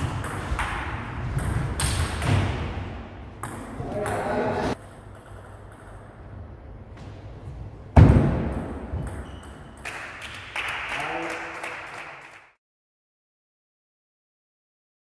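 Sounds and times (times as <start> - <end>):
loud thud: 8.0 - 8.7.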